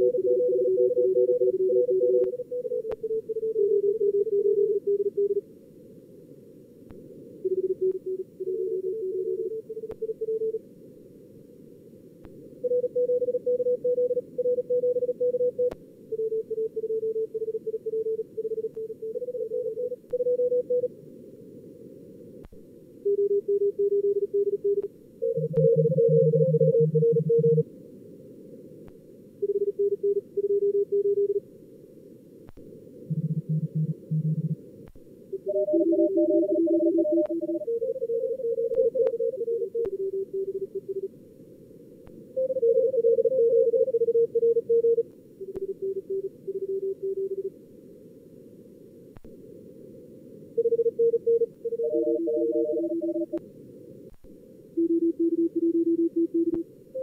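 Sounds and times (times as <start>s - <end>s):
receiver noise hiss: 0.0s - 57.0s
fast morse code tones: 50.6s - 53.4s
lower-pitched keyed signal: 50.6s - 53.4s.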